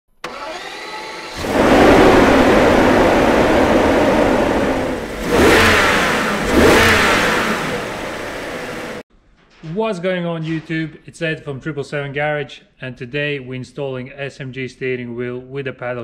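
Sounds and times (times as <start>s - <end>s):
car engine running and revving: 1.2s - 9.0s.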